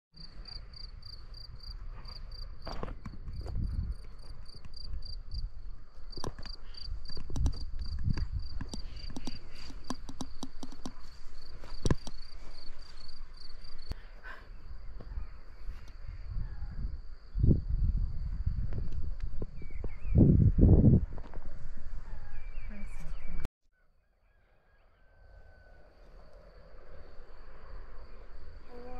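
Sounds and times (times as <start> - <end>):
cricket chirping: 0.2 - 21.4, 24.9 - 28.9
footsteps on dirt path: 1.6 - 5.1, 6.1 - 14.0.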